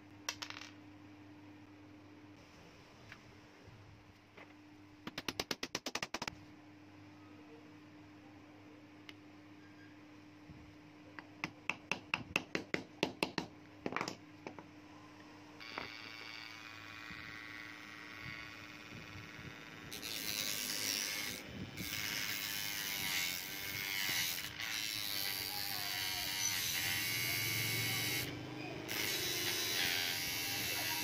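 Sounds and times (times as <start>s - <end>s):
small electric motor whining: 15.6s - 31.0s.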